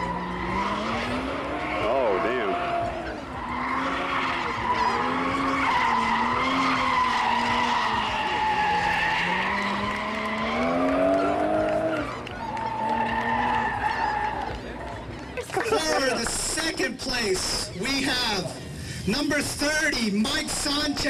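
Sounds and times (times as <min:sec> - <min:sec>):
tyres squealing: 0:00.0 - 0:11.4
car engine revving: 0:00.0 - 0:15.0.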